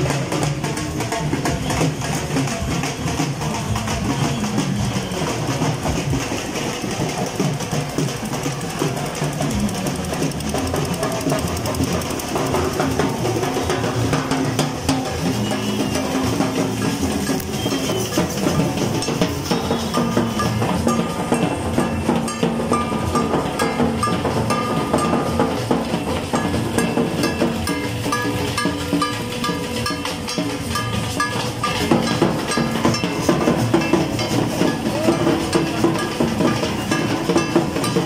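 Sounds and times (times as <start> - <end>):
crowd noise: 0.0 - 38.0
procession music with drums: 0.0 - 38.0
engine running: 8.2 - 15.8.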